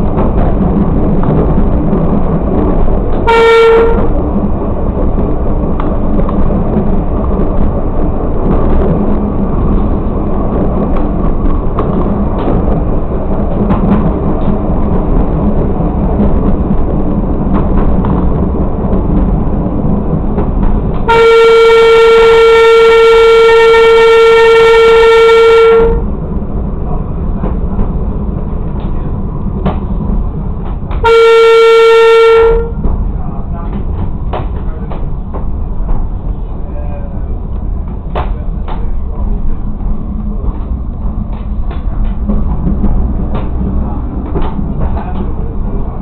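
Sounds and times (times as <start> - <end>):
railcar running on track: 0.0 - 46.0
railcar horn blasts: 3.2 - 4.2, 21.0 - 26.1, 31.0 - 32.8.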